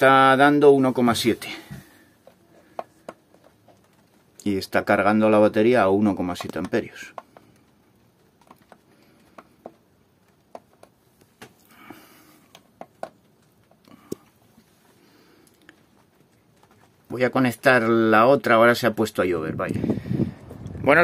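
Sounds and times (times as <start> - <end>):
faint ticks and clicks: 6.2 - 17.2.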